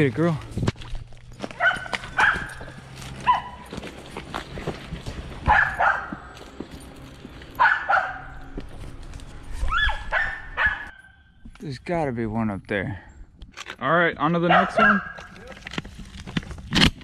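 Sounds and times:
dog barking: 1.6s - 3.7s, 5.4s - 6.3s, 7.6s - 8.4s, 9.7s - 11.1s, 14.4s - 15.2s.

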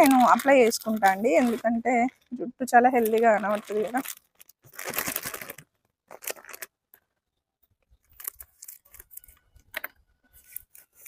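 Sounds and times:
plastic packet rustling: 0.0s - 6.8s, 8.1s - 9.4s.

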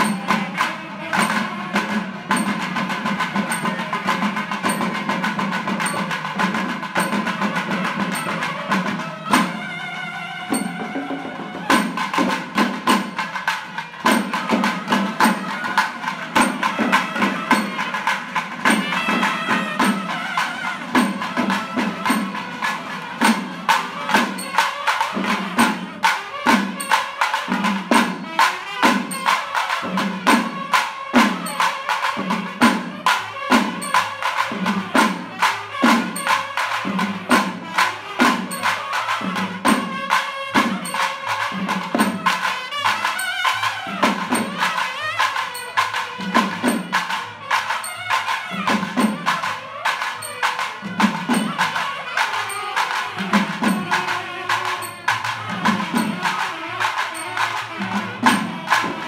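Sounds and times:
barrel drums beaten with sticks: 0.0s - 9.8s, 10.5s - 59.0s
wind pipes playing a melody: 0.0s - 59.0s
rapid stick drumming: 30.3s - 59.0s.

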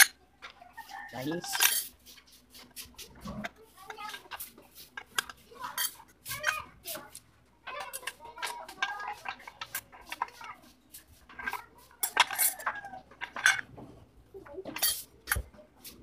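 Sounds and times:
metal parts clinking: 1.4s - 1.9s, 11.4s - 13.7s, 14.8s - 15.4s.

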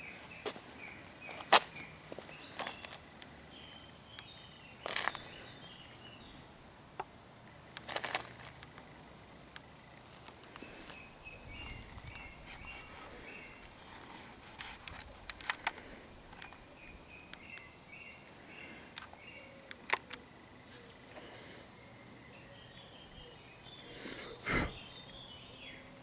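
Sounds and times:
sharp clicks: 14.6s - 16.6s, 18.9s - 20.2s.

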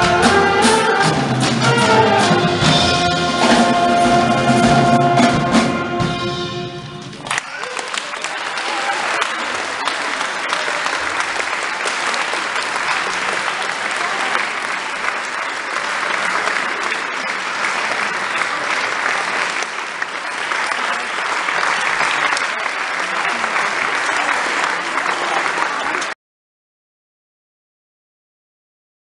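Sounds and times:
audience applauding: 7.0s - 26.2s.

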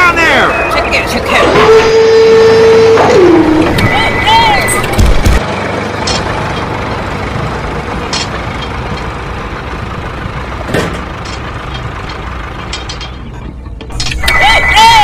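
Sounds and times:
truck engine idling: 2.2s - 15.0s.

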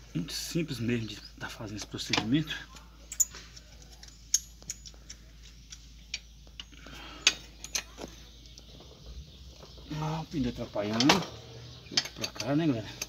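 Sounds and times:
wrench clicking on metal nuts: 2.1s - 7.9s, 12.0s - 13.0s.

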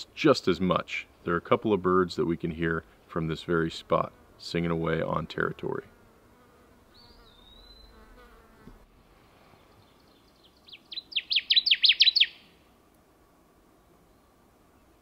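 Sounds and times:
bird singing sharp notes: 6.9s - 8.0s, 9.8s - 12.6s.

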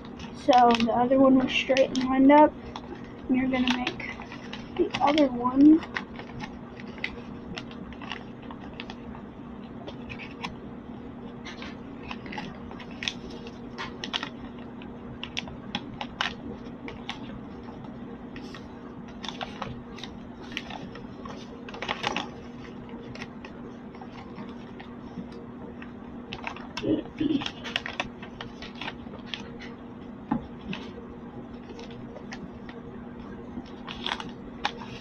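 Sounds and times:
steady low hum: 0.0s - 35.0s
paper being folded and creased: 0.2s - 9.0s, 9.9s - 10.6s, 11.4s - 17.4s, 18.4s - 25.4s, 26.3s - 29.5s, 33.6s - 35.0s.

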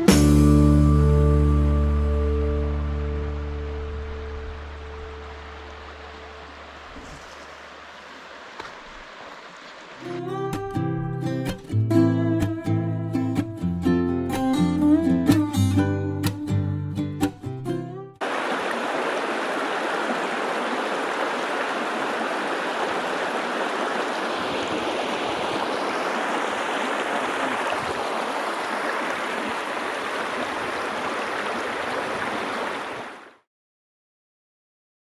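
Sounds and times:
river rushing over rocks: 3.1s - 10.1s, 18.2s - 33.3s.

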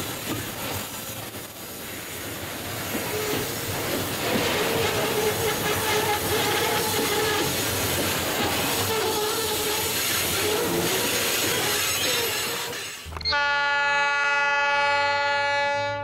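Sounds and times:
train wheels rumbling and clacking: 0.0s - 13.4s
high wheel squeal: 8.4s - 13.4s.

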